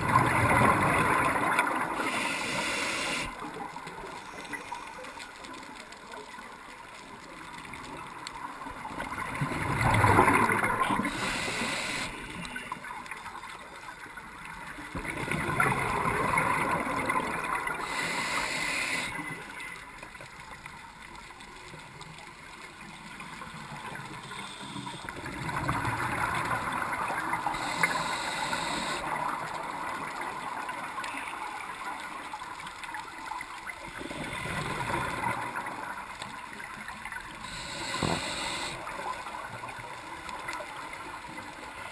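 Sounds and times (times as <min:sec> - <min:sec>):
regulator hiss: 0:01.9 - 0:03.4, 0:10.9 - 0:12.6, 0:17.6 - 0:19.4, 0:24.1 - 0:25.1, 0:27.4 - 0:29.2, 0:37.4 - 0:39.0.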